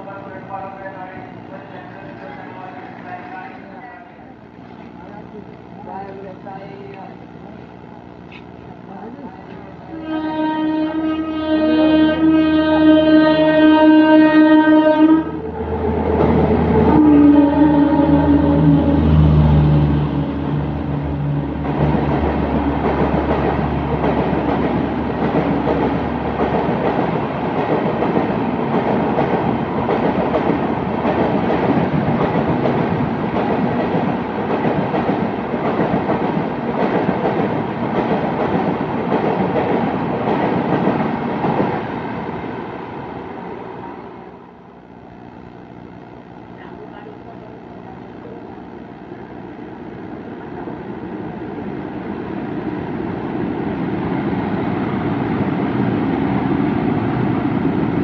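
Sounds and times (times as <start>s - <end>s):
locomotive horn: 9.9s - 21.6s
train wheels clattering over rails: 21.6s - 42.3s.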